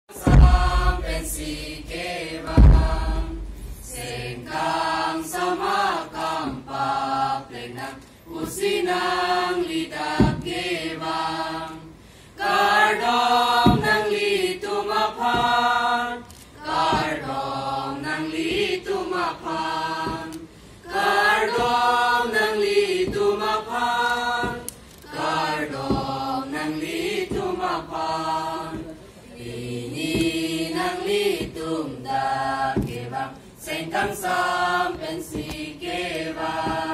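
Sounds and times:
children's choir singing: 0.1s - 36.9s
low thump: 0.2s - 4.5s, 10.2s - 10.5s, 13.5s - 14.1s, 32.7s - 33.1s, 36.3s - 36.9s.

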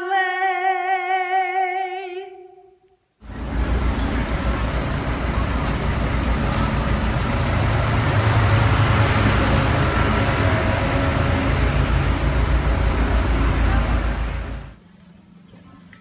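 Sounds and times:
bus engine low rumble: 3.2s - 14.8s
street traffic: 3.2s - 14.8s.

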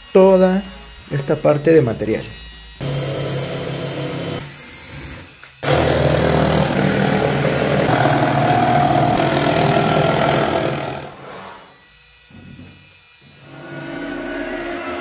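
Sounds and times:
jigsaw cutting plywood: 2.8s - 11.6s, 12.3s - 15.0s.

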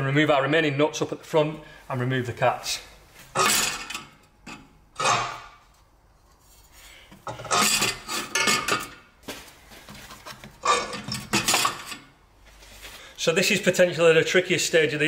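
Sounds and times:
metal clattering: 3.3s - 5.8s, 7.2s - 9.0s, 10.5s - 12.1s
metal pipe clanking and scraping: 3.3s - 9.1s, 9.8s - 12.2s.

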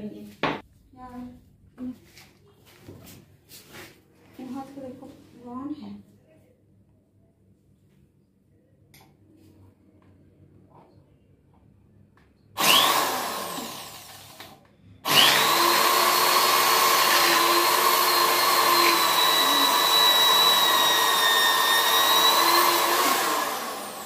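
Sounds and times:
electric drill drilling into tile: 12.6s - 24.0s.

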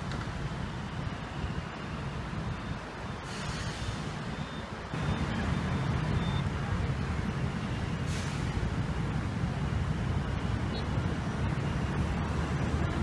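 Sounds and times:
traffic rumble: 0.0s - 13.0s
brief hiss: 3.2s - 4.2s, 8.0s - 8.6s.

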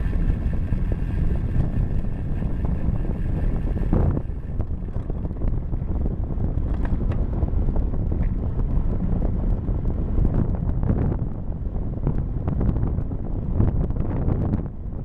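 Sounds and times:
bike clicks and rattles: 0.0s - 7.4s
tyres rumbling on path: 0.0s - 14.5s
wind buffeting microphone: 0.0s - 15.0s.

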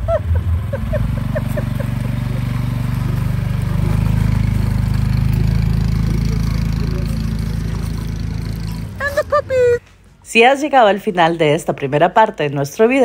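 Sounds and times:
motorcycle engine revving: 0.0s - 10.1s.

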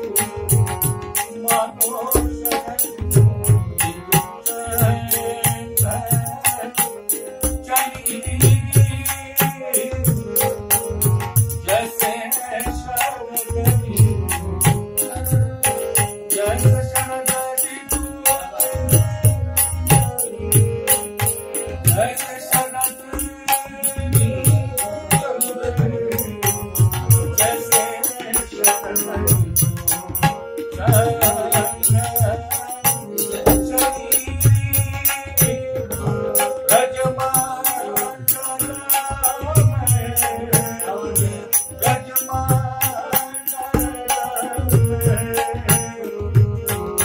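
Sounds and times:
harmonium: 0.0s - 47.0s
man singing: 0.0s - 47.0s
hand drum beat: 28.2s - 36.4s, 43.7s - 47.0s.

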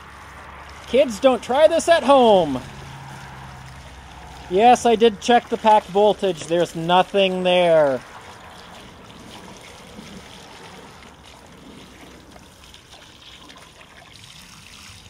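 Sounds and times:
garden hose water spraying: 0.0s - 15.0s
water splashing and running off: 0.0s - 15.0s.

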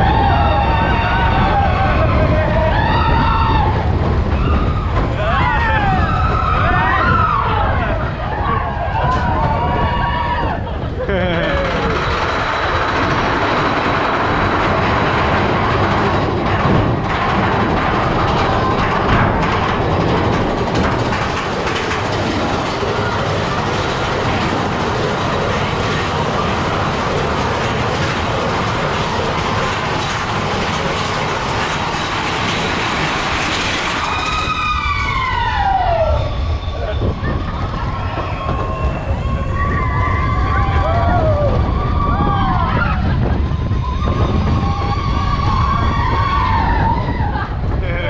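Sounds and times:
rider whooping: 0.0s - 19.2s, 33.8s - 48.0s
roller coaster cars rumbling on track: 0.0s - 48.0s.

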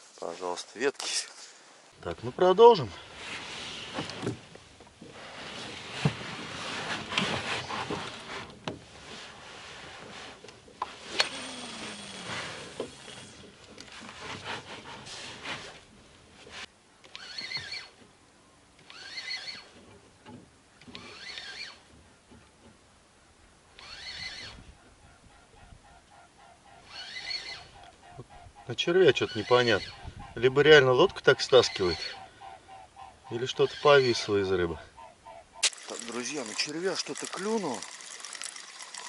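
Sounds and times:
rough rustling: 0.0s - 11.2s
fishing reel cranking: 11.1s - 13.5s, 17.1s - 17.9s, 18.8s - 19.7s, 20.9s - 21.8s, 23.8s - 24.6s, 26.8s - 27.7s.

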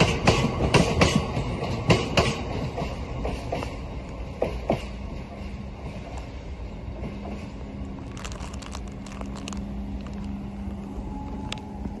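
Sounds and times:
freight train rumbling: 0.0s - 12.0s.

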